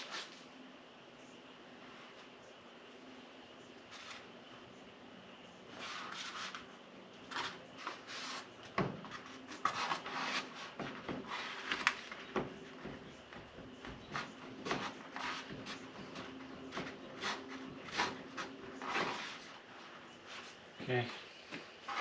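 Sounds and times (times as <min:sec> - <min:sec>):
rubbing and scuffing on window: 0:03.9 - 0:04.3, 0:05.7 - 0:20.8, 0:21.4 - 0:22.0.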